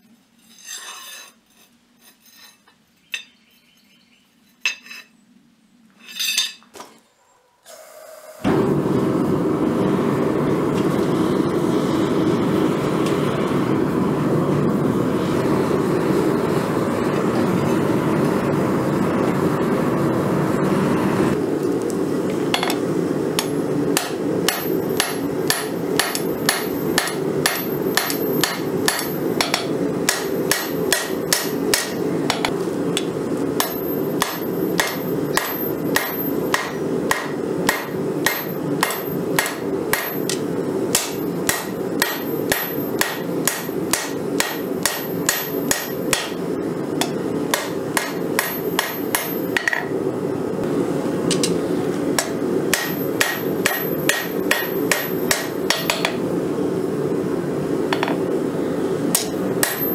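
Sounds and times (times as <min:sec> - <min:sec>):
gas burner rushing: 0:07.7 - 0:59.9
hammer striking steel on anvil: 0:23.4 - 0:46.4, 0:47.0 - 0:49.9, 0:51.3 - 0:51.6, 0:52.2 - 0:56.2, 0:57.9 - 0:58.2, 0:59.1 - 0:59.9.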